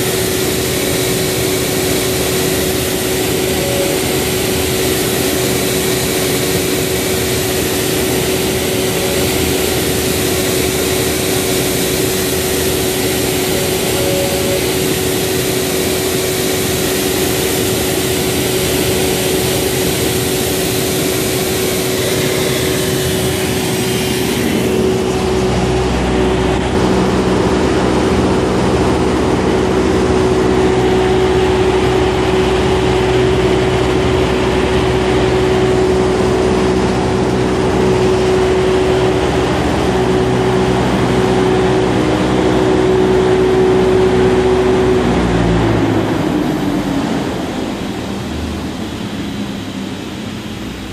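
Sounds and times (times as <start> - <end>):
router spindle whining: 0.0 - 48.2
low rumble: 21.2 - 40.8.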